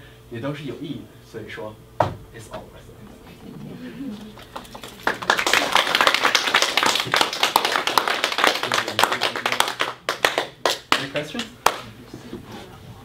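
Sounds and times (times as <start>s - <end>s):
audience applauding: 4.2s - 11.9s.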